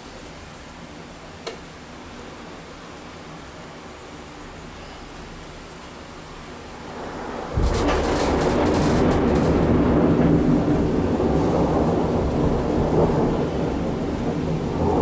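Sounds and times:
thunder crack and rumble: 6.7 - 15.0.

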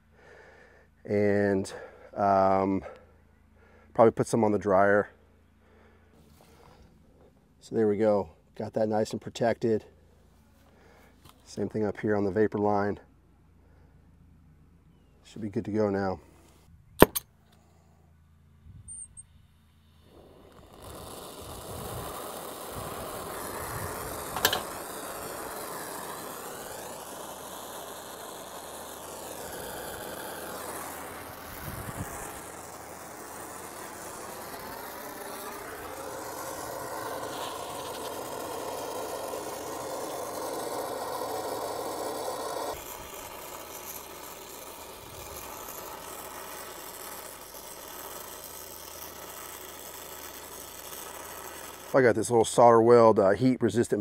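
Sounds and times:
sharp click: 17.0 - 17.3
gas hissing: 19.8 - 52.3.

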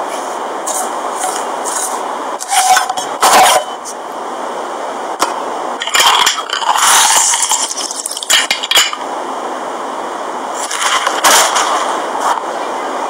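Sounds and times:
steady hiss: 0.0 - 13.0
metal utensils clinking and scraping: 5.8 - 9.0.

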